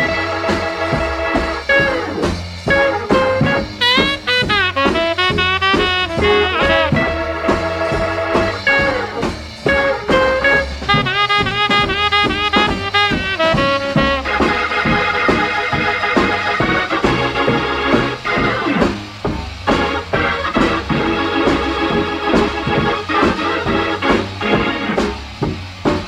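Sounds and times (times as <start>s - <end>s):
organ sustained chords: 0.0s - 26.0s
swinging small band: 8.7s - 15.4s.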